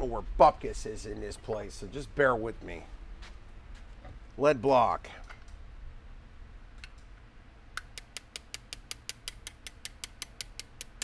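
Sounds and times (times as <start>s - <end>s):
small hammer tapping steel punch: 7.8s - 11.0s.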